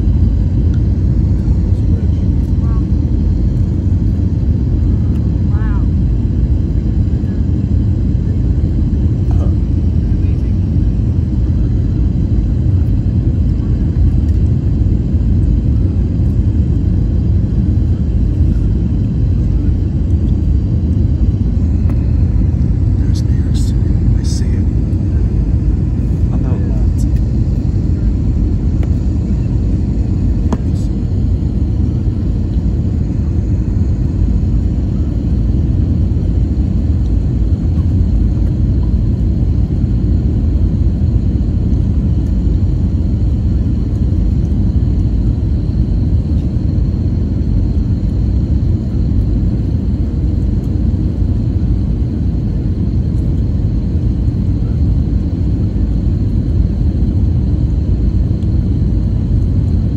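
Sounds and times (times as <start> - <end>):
airliner engines rumbling in cabin: 0.0 - 59.9
faint high whine: 17.5 - 41.2.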